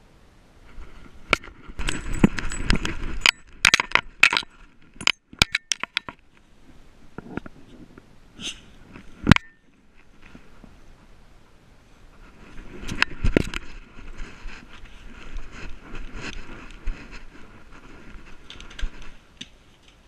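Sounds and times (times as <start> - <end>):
sharp clicks and clinks: 1.4 - 6.2
camera handling rustling: 12.5 - 20.0.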